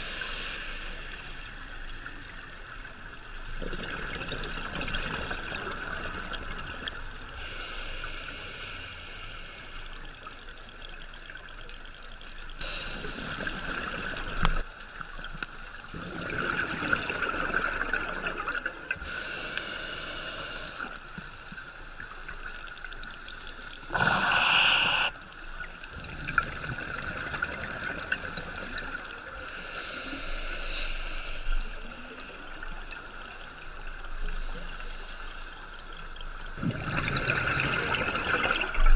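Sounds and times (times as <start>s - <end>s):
regulator hiss: 0.0s - 1.6s, 7.4s - 10.0s, 12.6s - 14.1s, 19.0s - 22.5s, 23.6s - 25.4s, 28.5s - 32.3s
exhaled bubbles underwater: 3.4s - 7.3s, 15.8s - 19.0s, 23.8s - 29.2s, 36.5s - 38.9s.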